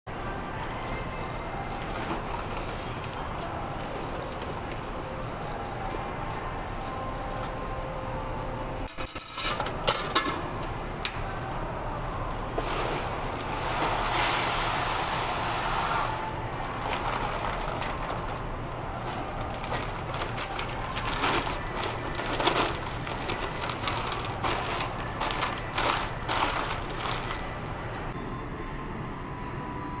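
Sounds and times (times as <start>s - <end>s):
paper bags rustling: 16.6s - 28.1s.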